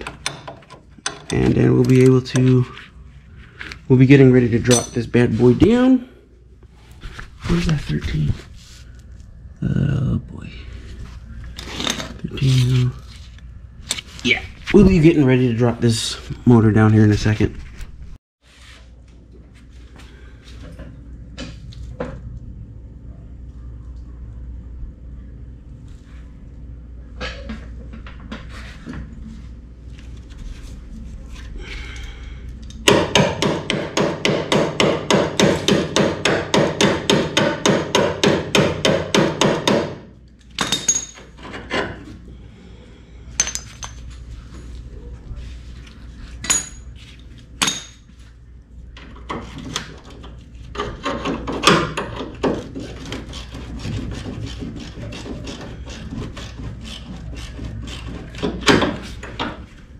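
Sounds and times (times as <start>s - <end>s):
sharp metallic clicks and knocks: 0.0s - 2.5s.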